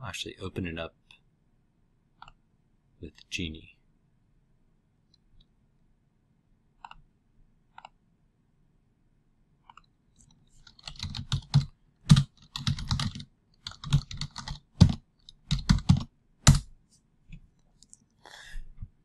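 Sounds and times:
typing on computer keyboard: 10.6 - 16.7.

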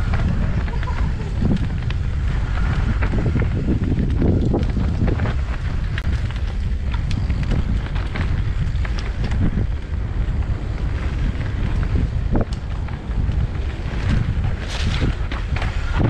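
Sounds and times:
bike rattling over rough ground: 0.0 - 16.0
wind buffeting microphone: 0.0 - 16.0.

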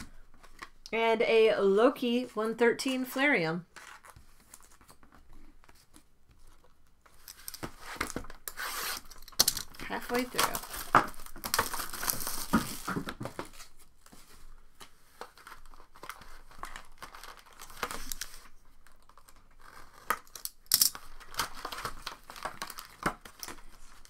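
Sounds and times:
packaging crinkling: 6.6 - 13.8, 15.2 - 24.0.

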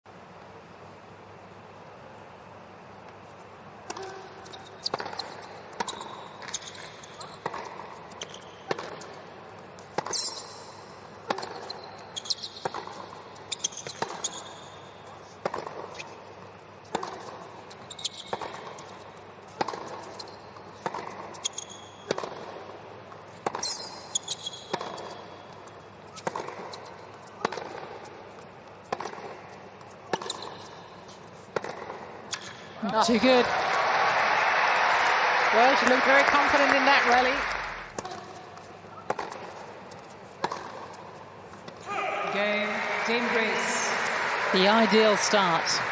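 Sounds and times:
tennis racket hitting ball: 3.8 - 9.2, 9.8 - 14.6, 15.3 - 16.2, 16.8 - 30.8, 31.5 - 32.6, 37.9 - 41.8
tennis ball bouncing: 3.8 - 33.3, 35.9 - 41.8
shoe squeaks: 4.0 - 8.6, 9.8 - 16.2, 17.7 - 19.0, 20.0 - 22.1, 23.5 - 25.5, 26.1 - 27.5, 30.0 - 31.5.

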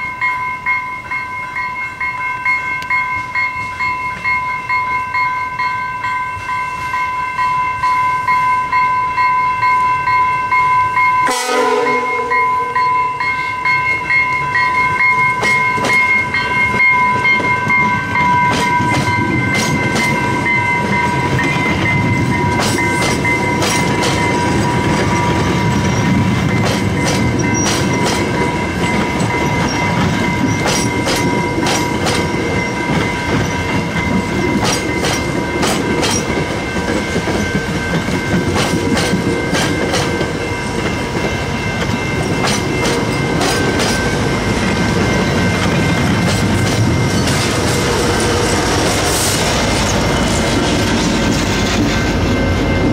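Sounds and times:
high ringing tone: 0.0 - 52.9
train passing with rumble: 0.0 - 52.9
wheels clicking over rail joints: 15.0 - 52.9.

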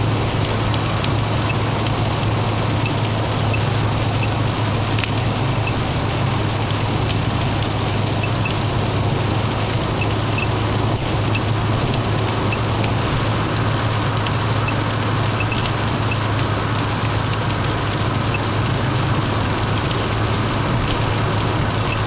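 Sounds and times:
car road and engine noise: 0.0 - 22.0.

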